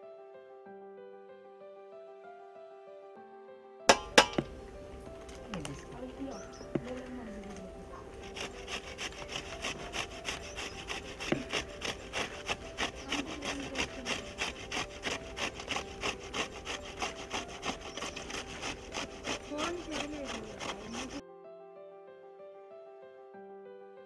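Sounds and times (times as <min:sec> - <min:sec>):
grating on metal hand grater: 0:03.9 - 0:04.6, 0:06.3 - 0:21.2.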